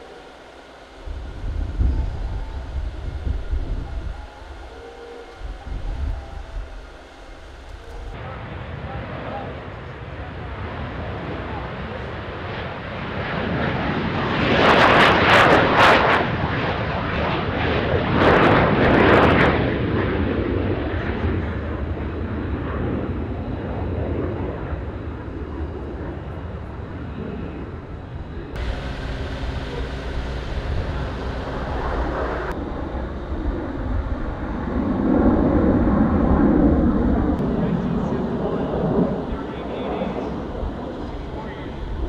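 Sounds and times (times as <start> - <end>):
deep rumble: 0.0 - 8.2, 28.6 - 42.0
loud crackling jet surges: 0.0 - 8.2, 28.6 - 42.0
jet engine at high thrust: 0.0 - 42.0.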